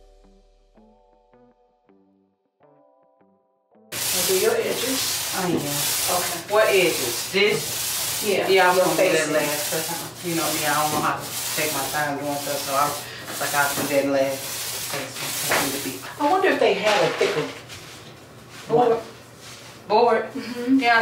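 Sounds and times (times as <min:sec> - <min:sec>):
paint roller rasping on tabletop: 0:04.0 - 0:17.9.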